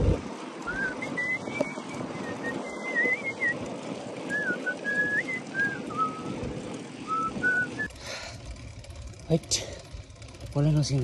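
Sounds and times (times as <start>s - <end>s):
bicycle tyres rumbling on path: 0.0s - 11.0s
man whistling a tune: 0.7s - 3.6s, 4.3s - 6.3s, 7.1s - 7.9s.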